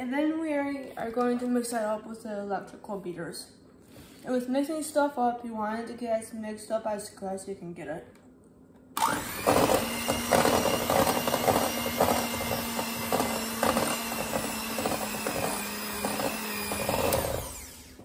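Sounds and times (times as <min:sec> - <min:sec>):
electric hand mixer whirring: 0:09.0 - 0:18.0.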